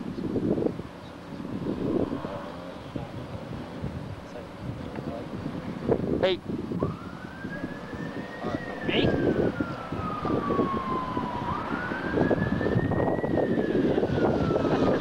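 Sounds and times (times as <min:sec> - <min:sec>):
low rumbling noise: 0:00.0 - 0:15.0
siren wailing: 0:06.7 - 0:15.0.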